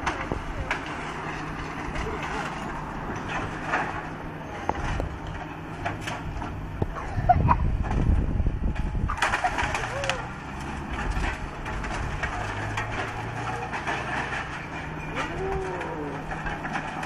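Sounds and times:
excavator engine running: 0:00.0 - 0:17.0
wood cracking and crunching: 0:07.8 - 0:17.0.

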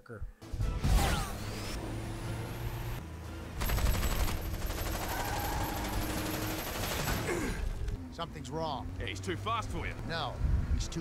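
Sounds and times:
rapid automatic gunfire: 0:03.6 - 0:07.3.

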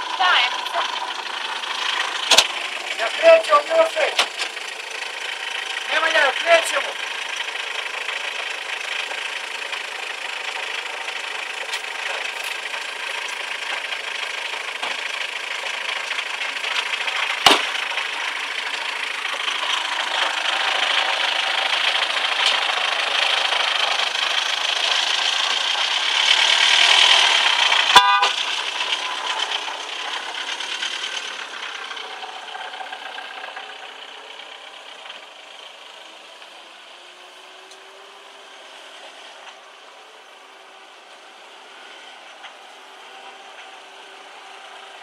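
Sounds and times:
car horns honking: 0:02.0 - 0:04.6, 0:26.4 - 0:30.3
sharp knock: 0:17.4 - 0:17.7.

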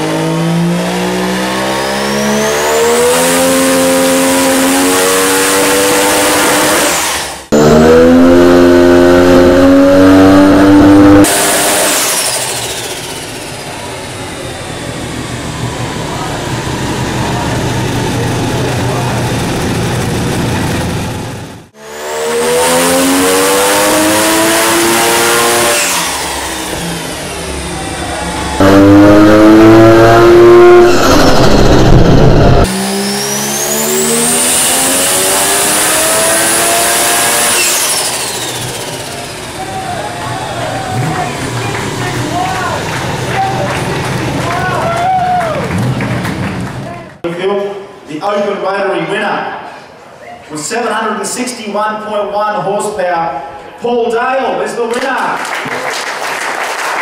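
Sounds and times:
rotary engine revving on dyno: 0:00.0 - 0:44.8
high turbo whine: 0:00.0 - 0:47.2
engine idling: 0:12.3 - 0:21.6, 0:26.1 - 0:28.9, 0:38.1 - 0:47.1.

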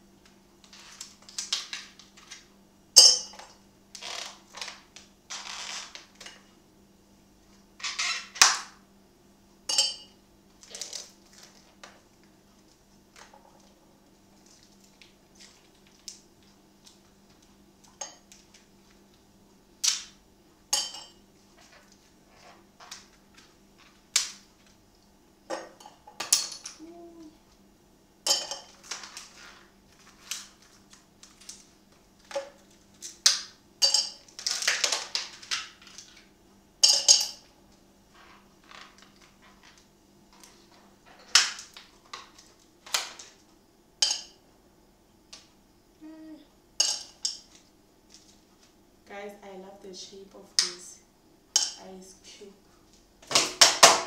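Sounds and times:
low steady hum: 0:00.0 - 0:54.0
ice cubes cracking in tray: 0:10.6 - 0:11.7, 0:28.8 - 0:33.5, 0:34.2 - 0:36.3.

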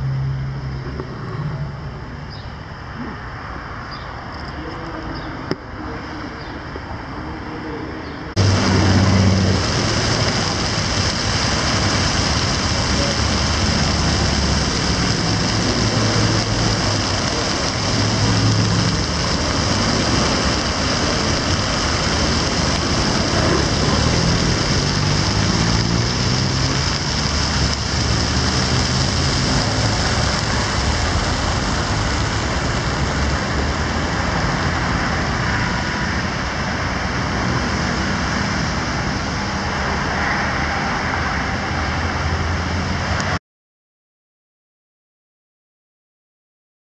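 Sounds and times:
city road traffic: 0:00.0 - 0:43.4
passing car engines humming: 0:08.4 - 0:36.0.

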